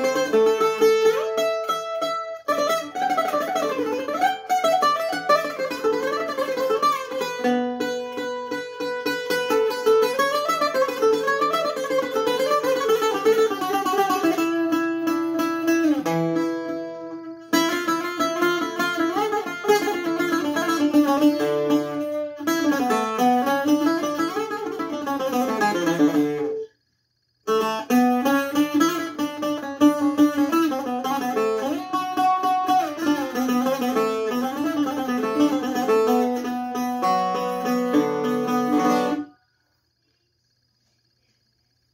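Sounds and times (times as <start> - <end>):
bouzouki plucked runs: 0.0 - 26.8, 27.5 - 39.4.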